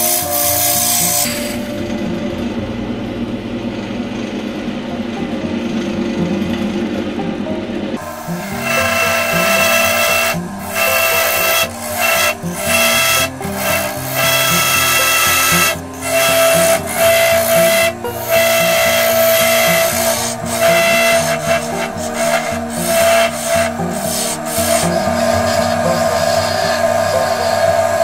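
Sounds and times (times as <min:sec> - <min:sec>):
chisel scraping wood on lathe: 0:00.0 - 0:01.7, 0:08.0 - 0:28.0.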